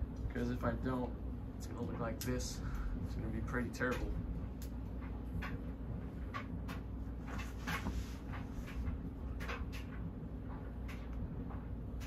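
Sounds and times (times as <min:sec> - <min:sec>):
ceiling fan humming: 0:00.0 - 0:12.0.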